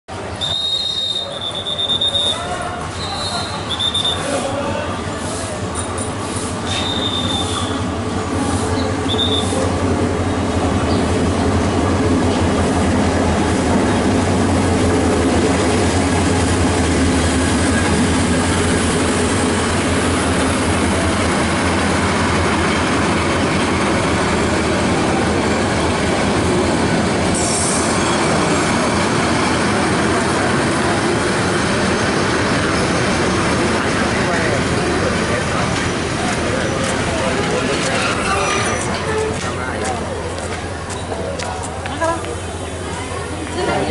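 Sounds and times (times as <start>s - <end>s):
diesel locomotive engine drone: 0.1s - 43.9s
train wheels rumbling on rails: 0.1s - 43.9s
high wheel squeals: 0.4s - 4.6s, 6.6s - 7.9s, 8.6s - 9.7s, 36.5s - 39.5s.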